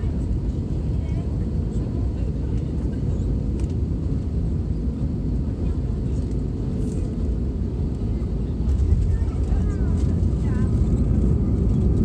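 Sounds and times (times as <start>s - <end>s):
jet engines: 0.0s - 12.0s
wheels rumbling on runway: 2.4s - 12.0s.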